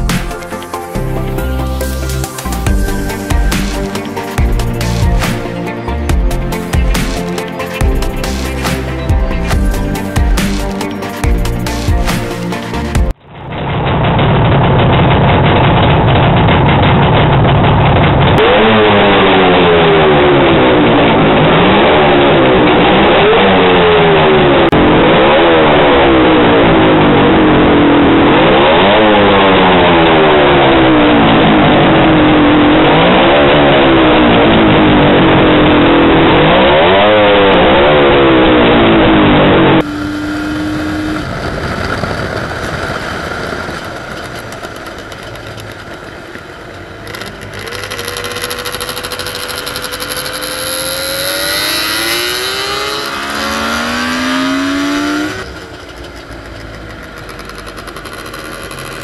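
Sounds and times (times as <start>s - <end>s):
two-stroke motorcycle engine revving: 15.3s - 59.0s
wind noise: 39.8s - 46.2s.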